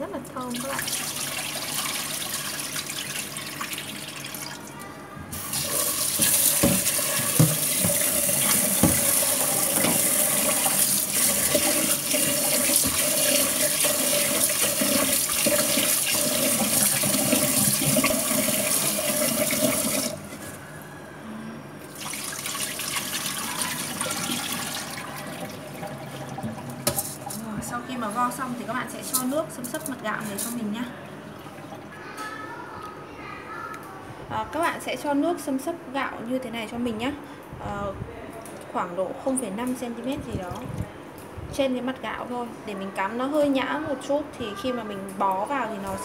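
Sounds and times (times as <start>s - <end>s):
rinse water pouring off: 0.6s - 4.6s, 5.3s - 20.5s, 21.9s - 27.4s
tap running into plastic bowl: 6.2s - 10.2s.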